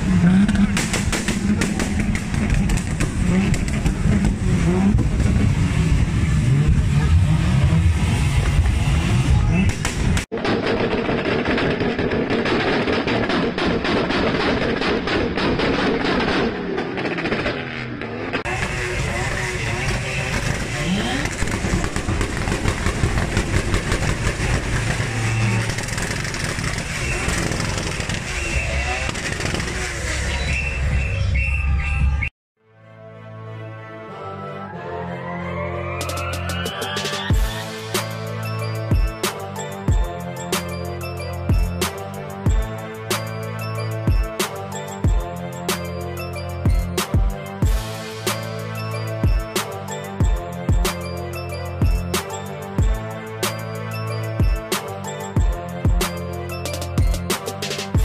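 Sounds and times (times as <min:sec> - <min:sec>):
car engine revving: 0:00.0 - 0:10.3, 0:12.2 - 0:31.2
sharp exhaust pops: 0:00.3 - 0:05.4, 0:09.7 - 0:17.8, 0:20.3 - 0:30.2.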